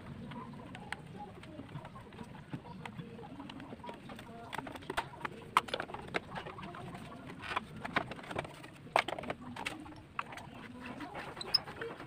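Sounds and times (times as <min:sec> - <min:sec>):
plastic cover clicks and knocks: 0:03.8 - 0:09.8.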